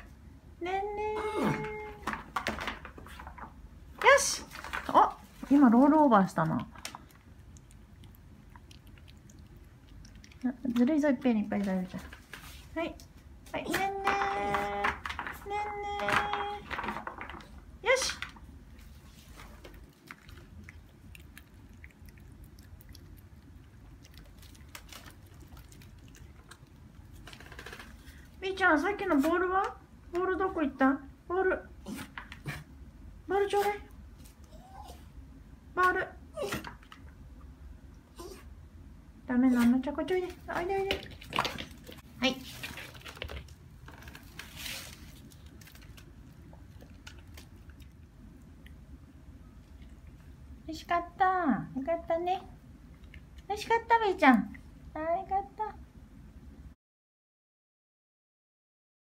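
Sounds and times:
dog chewing and crunching food: 1.6s - 28.4s, 39.6s - 50.6s, 52.6s - 53.5s
dog chewing and licking: 6.5s - 11.1s, 19.0s - 28.0s, 44.7s - 49.0s.

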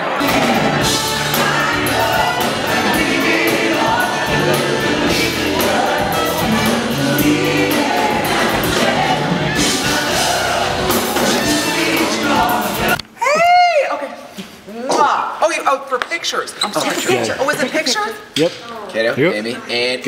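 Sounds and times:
backing singers: 0.0s - 13.1s
live band playing: 0.1s - 13.0s.

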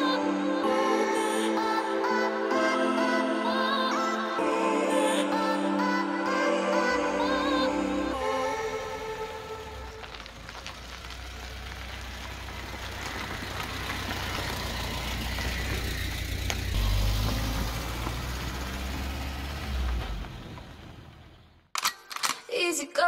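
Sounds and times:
motorhome engine running: 7.3s - 21.7s
tyres on gravel: 8.4s - 21.6s.

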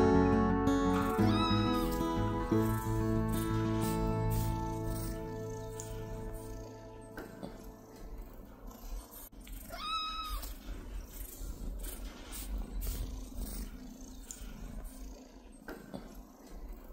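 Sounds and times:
cat purring: 0.9s - 16.9s
kitten mewing: 1.0s - 8.1s, 9.4s - 10.7s.

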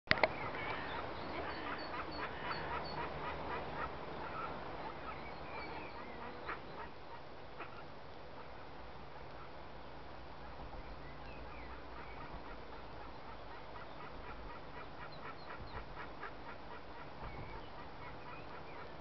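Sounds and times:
ducklings peeping: 0.1s - 8.7s, 10.4s - 19.0s
duck quacking: 0.7s - 7.8s, 11.6s - 17.2s.

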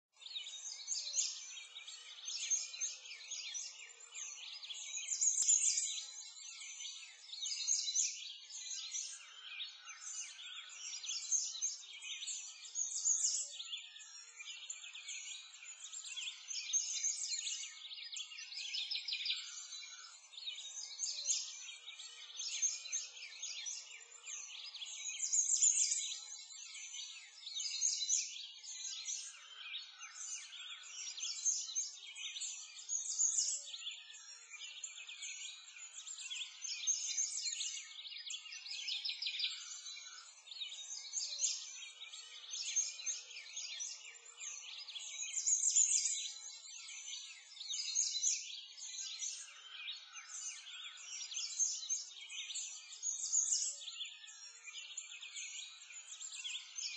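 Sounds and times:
songbirds chirping and trilling: 0.0s - 56.9s.

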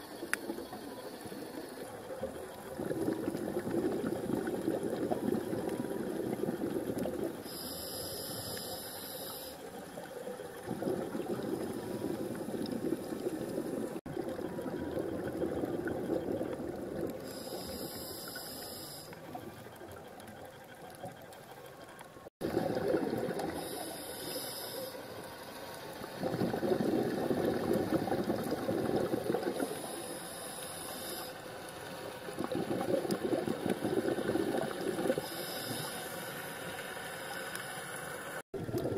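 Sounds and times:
regulator inhale hissing: 6.6s - 10.0s, 17.2s - 19.3s, 23.5s - 25.2s, 29.6s - 31.7s, 35.1s - 38.0s
bubble exhale rushing: 26.2s - 29.6s.

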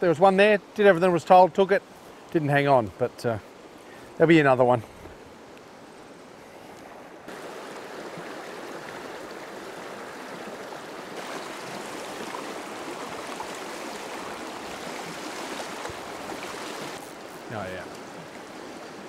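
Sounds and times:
stream flowing over stones: 7.0s - 19.0s.

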